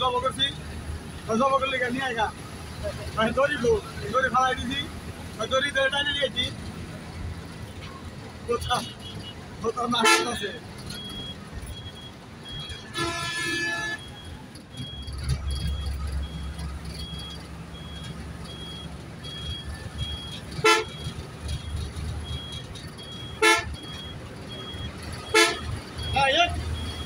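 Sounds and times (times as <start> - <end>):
engine and road noise: 0.0 - 27.0
vehicle horn: 10.0 - 10.4, 12.9 - 14.0, 20.6 - 21.0, 23.4 - 23.8, 25.3 - 25.6.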